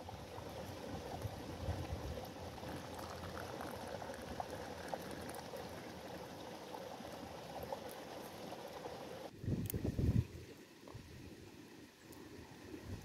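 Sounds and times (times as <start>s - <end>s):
running water: 0.0s - 13.0s
tea pouring into glass: 2.5s - 7.9s.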